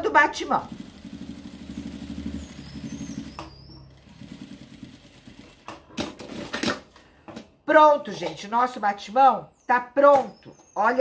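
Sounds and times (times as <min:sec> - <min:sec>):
sewing machine stitching: 0:00.1 - 0:06.8.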